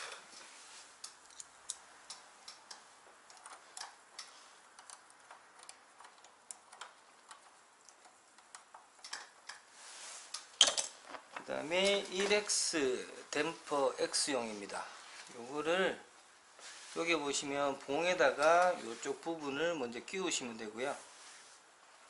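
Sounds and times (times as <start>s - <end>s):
small metallic clicks: 1.0s - 9.7s.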